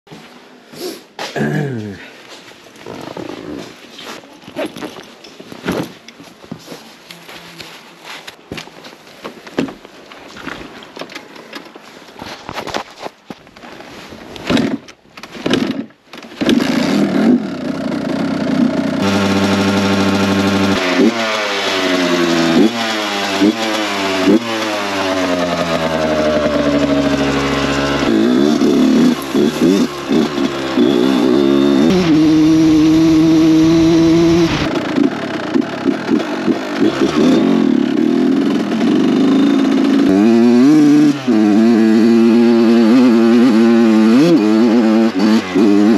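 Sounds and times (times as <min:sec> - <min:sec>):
dirt bike engine revving: 0:16.4 - 0:45.9.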